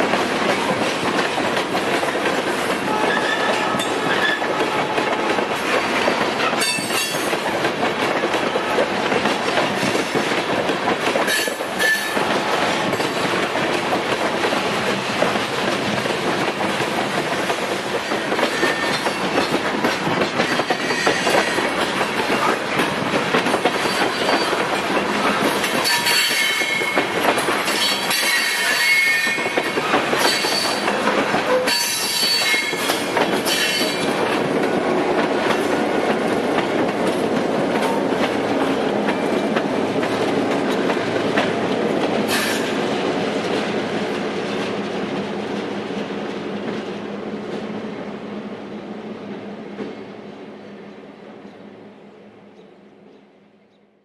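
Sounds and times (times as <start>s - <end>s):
wheels clicking over rail joints: 0.0s - 46.8s
high wheel squeal: 31.6s - 32.9s.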